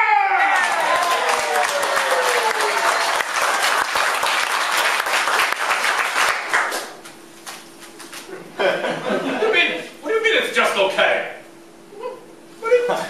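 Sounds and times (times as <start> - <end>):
audience applauding: 0.4 - 7.0.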